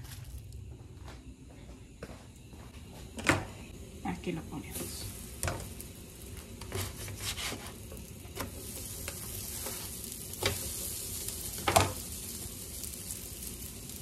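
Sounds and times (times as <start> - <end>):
food sizzling on a griddle: 3.7 - 14.0.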